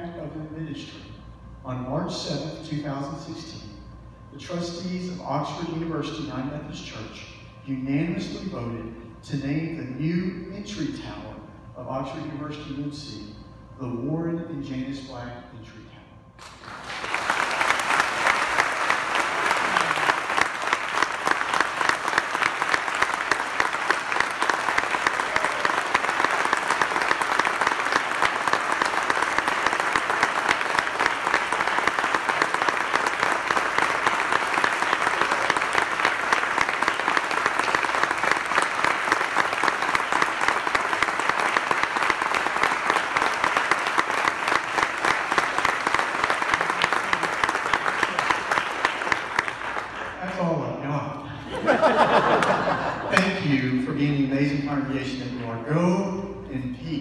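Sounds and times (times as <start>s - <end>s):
congregation applauding: 16.4s - 50.6s, 51.2s - 53.4s.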